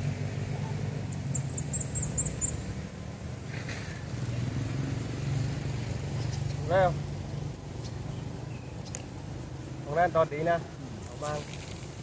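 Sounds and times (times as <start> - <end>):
engine humming: 0.0 - 12.0
high chirps: 1.1 - 3.0.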